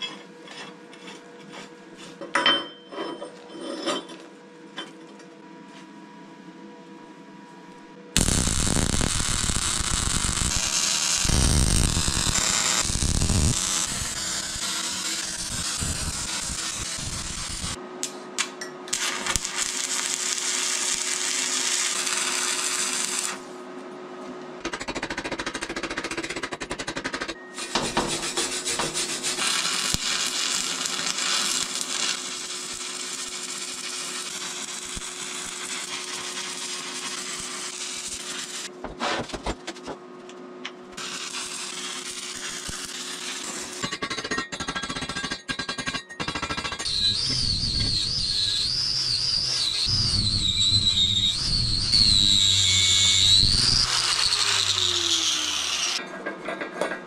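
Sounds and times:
motor whine: 8.2 - 17.8, 46.8 - 56.0
power tool on metal: 8.2 - 17.8, 18.9 - 23.4, 27.6 - 38.7, 41.0 - 43.8, 46.4 - 56.0.

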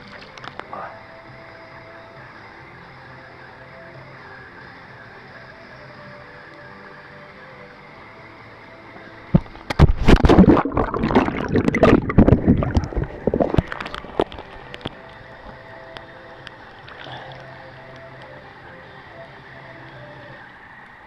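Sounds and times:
pool water splashing: 9.4 - 18.4.

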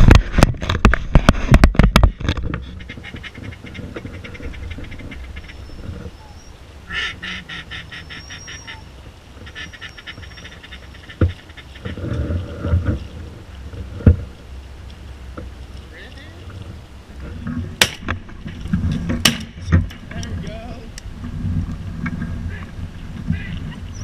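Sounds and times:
duck quacking: 6.9 - 12.0, 23.3 - 23.8
sharp thumps: 17.3 - 20.2.

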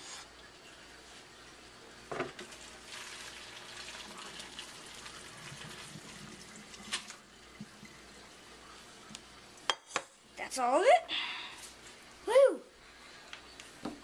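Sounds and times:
water pouring through a strainer: 2.3 - 8.0.

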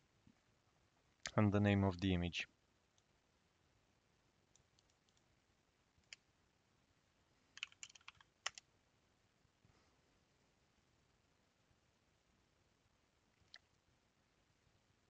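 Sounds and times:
computer keyboard keystrokes: 7.6 - 8.6.

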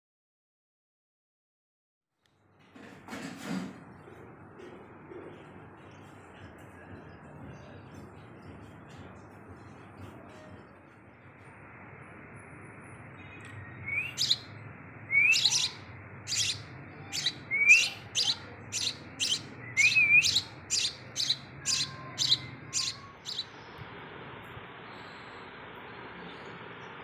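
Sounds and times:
chick chirping loudly: 14.0 - 14.4, 15.1 - 23.4.

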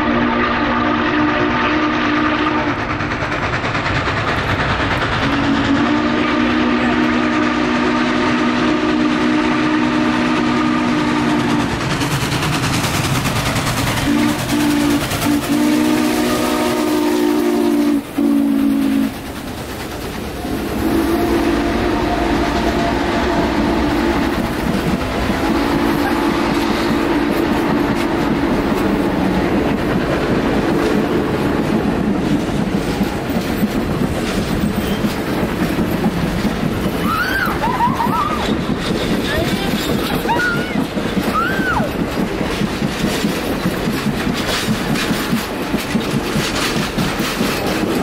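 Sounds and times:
steam whistle blasts: 0.0 - 2.8, 5.2 - 11.8, 14.0 - 19.2, 20.4 - 24.4, 25.3 - 28.2
train cars rumbling: 0.0 - 48.0
wheels clicking over rail joints: 2.5 - 5.7, 11.4 - 17.1, 18.8 - 20.8, 23.6 - 48.0.

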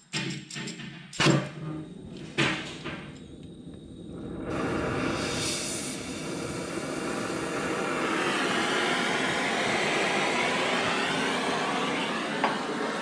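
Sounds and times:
steady rushing noise: 3.8 - 13.0.

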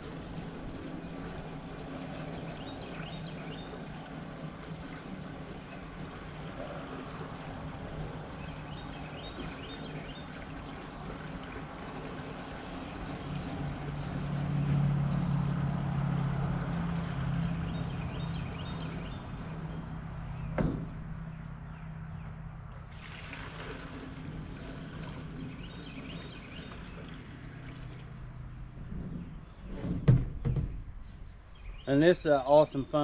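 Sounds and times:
engine running at low speed: 0.0 - 31.9.

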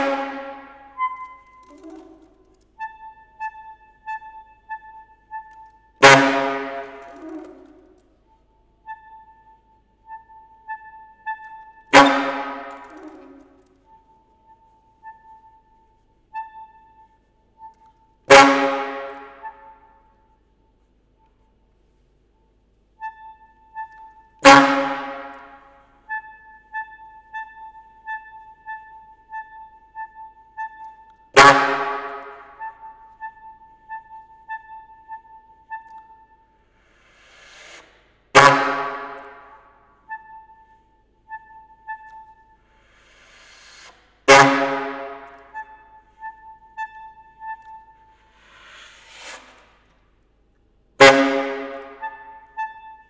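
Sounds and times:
saxophone soft high note pulses: 0.0 - 8.0
saxophone low notes: 0.0 - 15.8.

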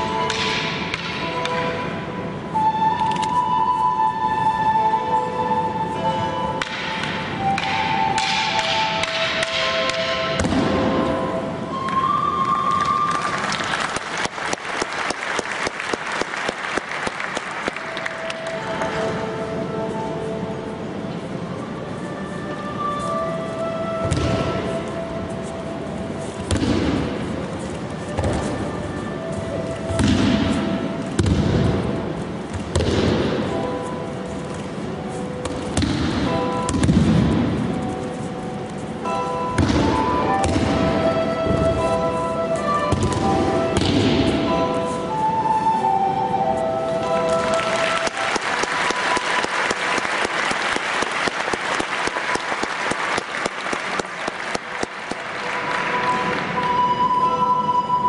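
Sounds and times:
background music with held notes: 0.0 - 58.0
audience applauding: 12.7 - 19.0, 47.1 - 56.6.

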